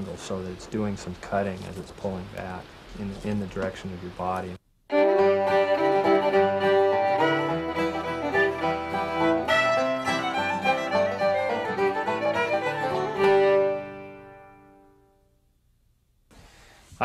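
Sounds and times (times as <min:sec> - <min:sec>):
fiddle music: 0:04.9 - 0:15.2.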